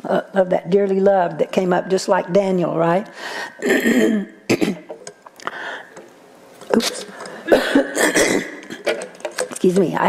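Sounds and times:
person coughing: 3.6 - 5.0, 7.4 - 8.9.

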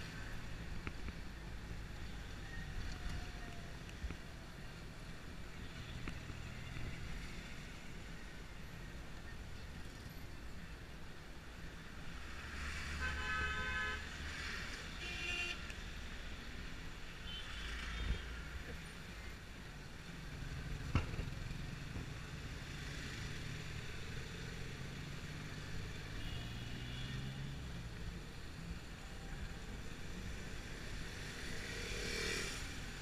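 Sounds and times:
engine and road rumble: 0.0 - 33.0
vehicle horns honking: 13.0 - 14.0, 15.0 - 15.6.

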